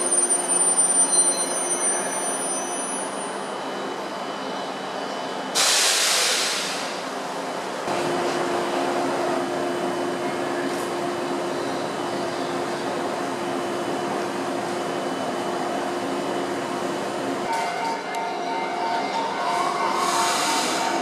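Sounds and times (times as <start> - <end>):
tonal hum of train: 0.0 - 21.0
compressed air hiss: 5.6 - 7.0.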